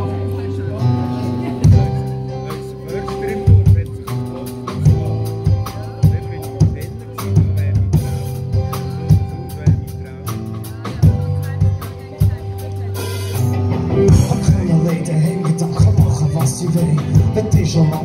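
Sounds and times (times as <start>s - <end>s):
bass guitar: 0.0s - 18.0s
drum kit beat: 0.0s - 18.0s
electric guitar: 10.4s - 18.0s.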